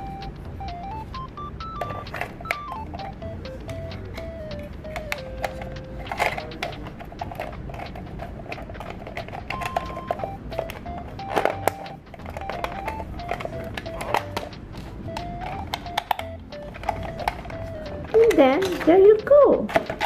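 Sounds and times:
electronic beeping tune: 0.0s - 6.6s, 9.5s - 19.5s
plastic toy toaster clicks: 18.2s - 20.0s.

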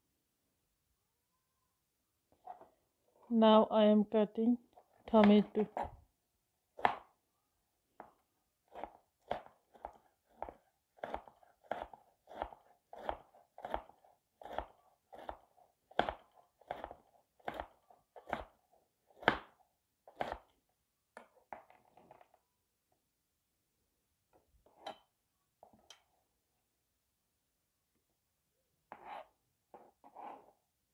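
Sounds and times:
knife slicing tomato: 6.8s - 7.2s, 8.7s - 20.5s, 28.9s - 30.6s.

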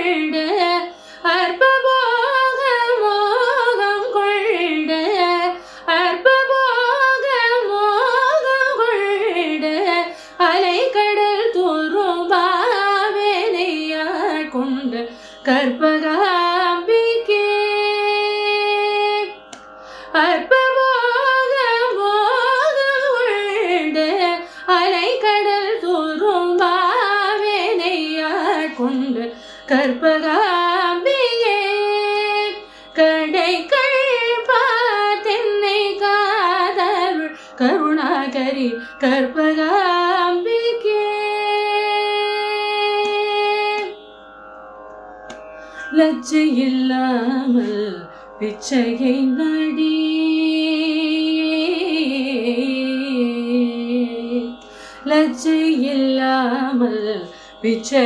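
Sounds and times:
woman singing ornamented phrases: 0.0s - 19.4s, 20.1s - 44.0s, 45.9s - 58.0s.

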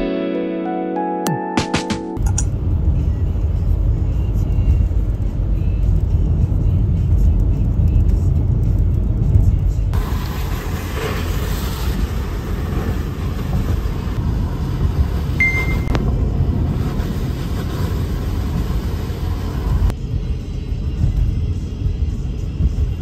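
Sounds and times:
background music: 0.0s - 10.0s
vehicle rumble: 2.2s - 23.0s
short high beep: 15.4s - 16.0s.

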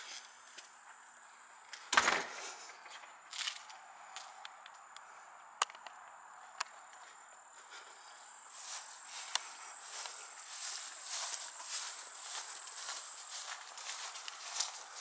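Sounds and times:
high-pitched insect trill: 7.9s - 15.0s
footsteps swishing through grass: 8.5s - 15.0s.

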